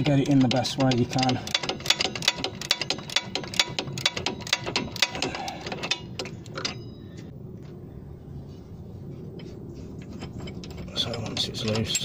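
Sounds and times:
ratchet clicking: 0:00.0 - 0:06.7.

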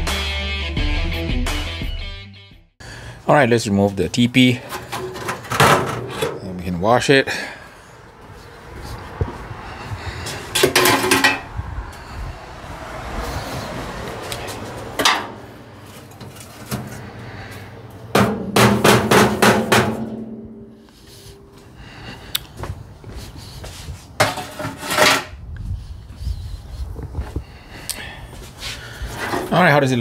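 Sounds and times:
sheet metal clanking: 0:04.6 - 0:06.5, 0:10.6 - 0:11.5, 0:15.0 - 0:15.4, 0:18.0 - 0:21.5, 0:24.2 - 0:25.4
ringing metallic strikes: 0:19.6 - 0:20.8.

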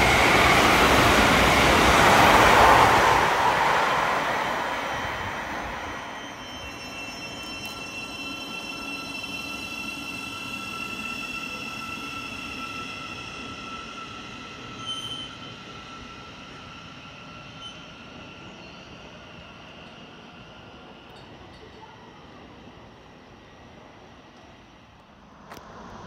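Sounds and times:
electric train whine: 0:00.0 - 0:21.7
train wheels rumbling: 0:00.0 - 0:22.0
short high squeak: 0:06.0 - 0:15.6, 0:17.5 - 0:17.9.

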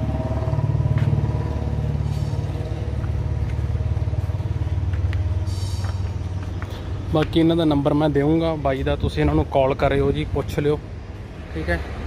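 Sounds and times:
tractor engine idling: 0:00.0 - 0:09.5.

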